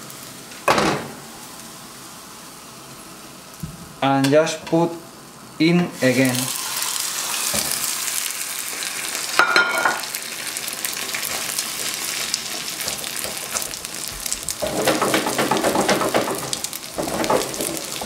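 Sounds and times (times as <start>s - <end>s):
omelette sizzling in oil: 6.0s - 18.0s.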